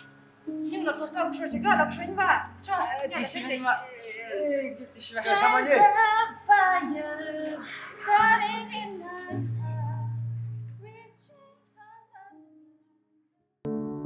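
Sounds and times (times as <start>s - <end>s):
person singing slow melody: 6.7s - 12.7s.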